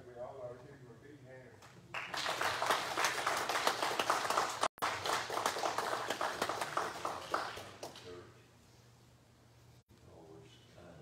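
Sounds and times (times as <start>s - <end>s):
congregation applauding: 1.9s - 8.1s.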